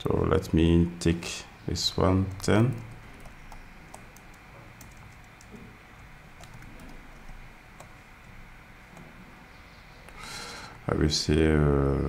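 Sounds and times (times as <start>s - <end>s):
computer keyboard keystrokes: 2.3s - 8.0s.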